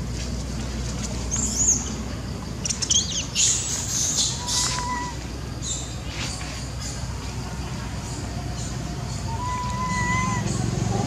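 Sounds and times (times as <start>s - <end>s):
low held monkey call: 2.7s - 5.9s, 7.9s - 11.0s
monkeys squealing and screeching: 2.9s - 5.2s, 9.1s - 11.0s.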